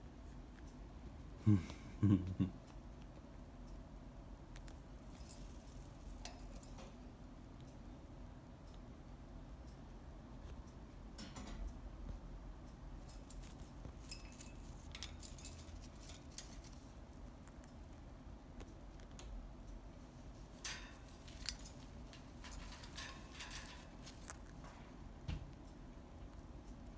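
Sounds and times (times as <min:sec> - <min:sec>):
parrot beaks clicking on cage bars: 0:13.0 - 0:17.8, 0:20.4 - 0:24.7.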